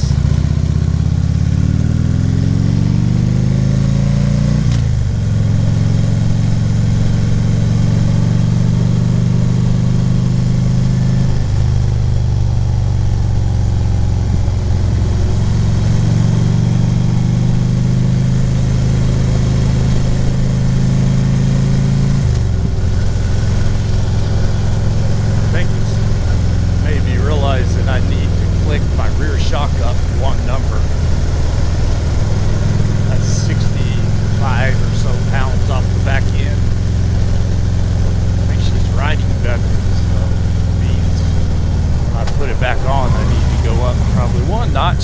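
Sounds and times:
motorcycle engine revving: 0.0 - 45.0
wind and road noise: 0.0 - 45.0.

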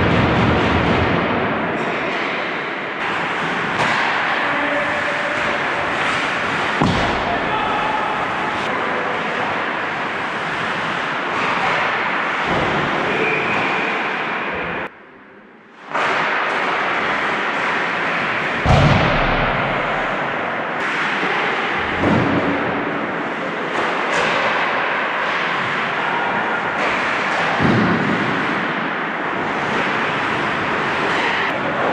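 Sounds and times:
sticks and puck clacking: 0.0 - 14.2, 15.8 - 31.9
heavy thud: 6.8 - 7.6, 18.6 - 20.3.

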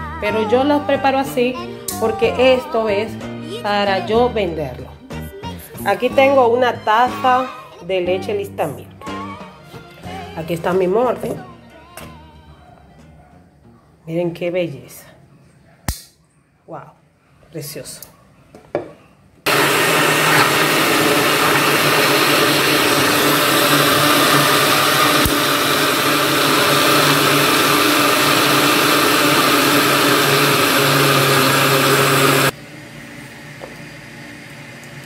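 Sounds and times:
blender running: 19.5 - 35.0.

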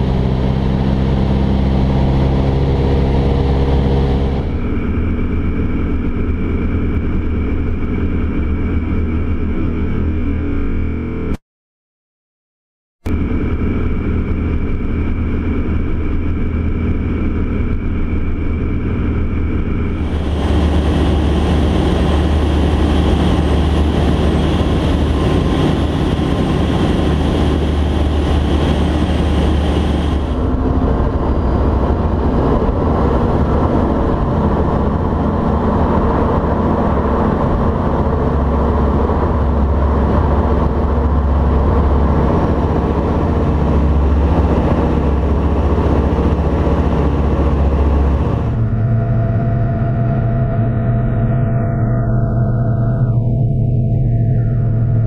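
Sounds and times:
light aircraft engine drone: 0.0 - 11.4, 13.1 - 55.0
thin high whine: 13.1 - 55.0.

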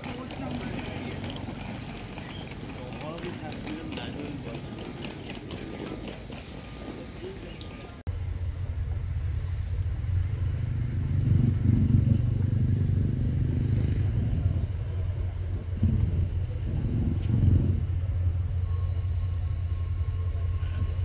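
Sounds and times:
faint voices: 0.0 - 8.1
diesel locomotive engine rumble: 0.0 - 21.0.

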